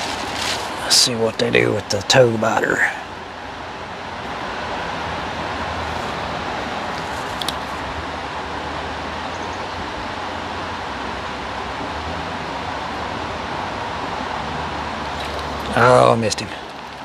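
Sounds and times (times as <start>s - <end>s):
water rushing in a creek: 0.0s - 17.0s.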